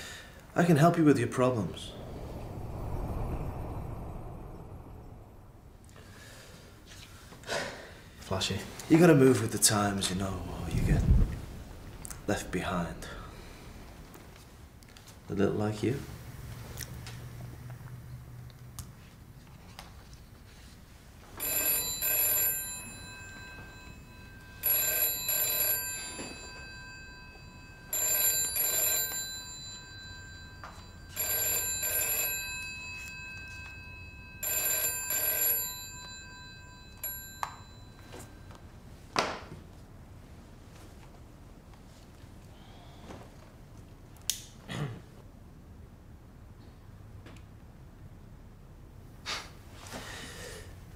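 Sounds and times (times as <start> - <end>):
telephone ringing: 21.2 - 38.7.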